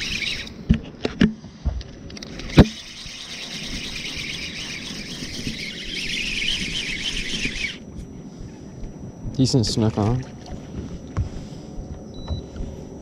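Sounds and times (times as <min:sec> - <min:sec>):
fishing reel whirring: 0:00.0 - 0:00.6, 0:02.2 - 0:08.1.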